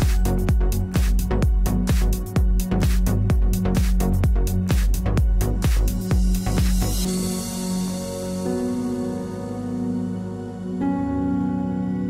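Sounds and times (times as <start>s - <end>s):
electronic dance music: 0.0s - 9.7s.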